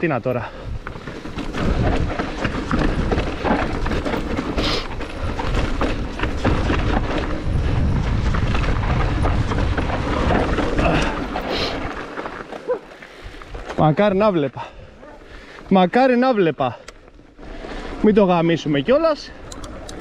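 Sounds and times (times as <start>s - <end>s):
bike rattling over bumps: 0.0s - 20.0s
tyres crunching over stones: 0.0s - 20.0s
wind rumble on microphone: 0.5s - 11.9s.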